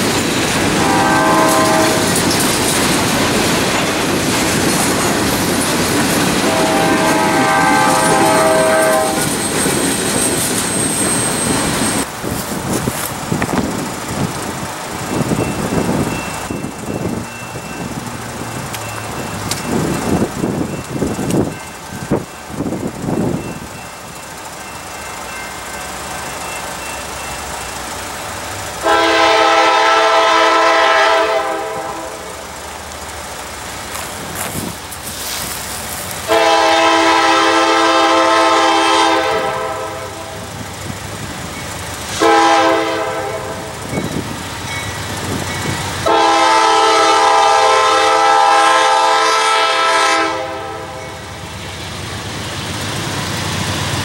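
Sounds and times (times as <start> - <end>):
train rumble: 0.0 - 54.0
locomotive air horn blasts: 0.8 - 2.2, 6.4 - 9.4, 28.8 - 32.4, 36.3 - 40.5, 42.1 - 43.8, 46.0 - 51.2.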